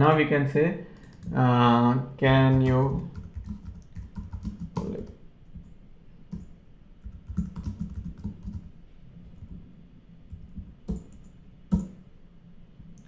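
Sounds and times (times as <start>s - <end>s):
typing on computer keyboard: 1.0s - 1.4s, 2.5s - 5.2s, 6.3s - 8.7s, 10.3s - 12.0s.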